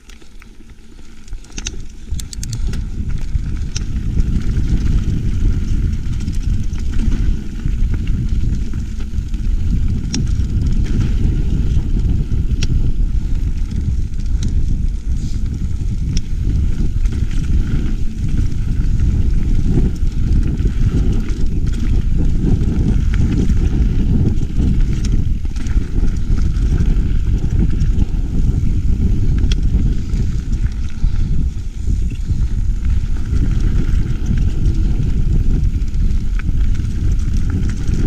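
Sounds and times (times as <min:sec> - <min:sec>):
stones clicking and rattling: 0:00.0 - 0:09.4
wind noise on microphone: 0:00.6 - 0:38.0.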